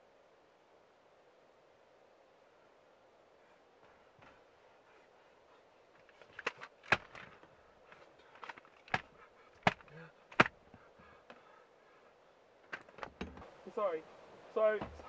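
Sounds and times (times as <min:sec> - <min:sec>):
plastic bottle smacking toy: 0:08.4 - 0:10.6.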